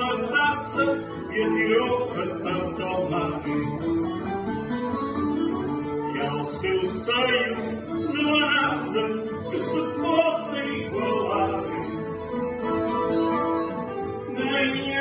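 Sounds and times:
person singing: 0.0s - 3.9s, 5.7s - 12.3s, 13.8s - 15.0s
acoustic guitar: 0.0s - 15.0s.

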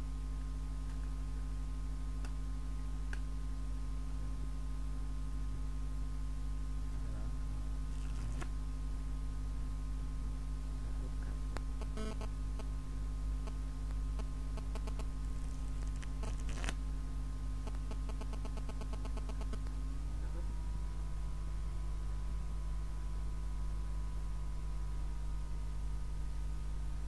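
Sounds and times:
low hum and hiss: 0.0s - 27.0s
playing cards clicking and ticking: 14.8s - 16.8s.

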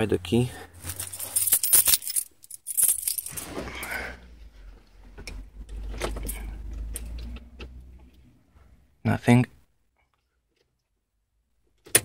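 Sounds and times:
car keys jangling: 0.8s - 3.4s
handling noise: 0.8s - 3.8s.

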